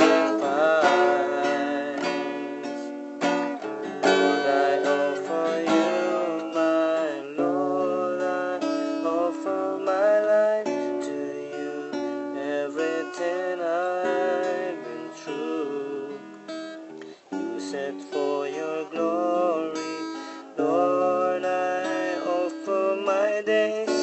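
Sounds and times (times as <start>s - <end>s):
slow song with strummed acoustic guitar: 0.0s - 24.0s.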